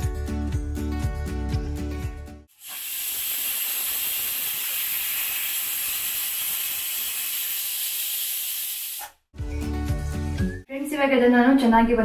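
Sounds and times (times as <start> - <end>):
pressure cooker steam hiss: 2.5 - 9.2.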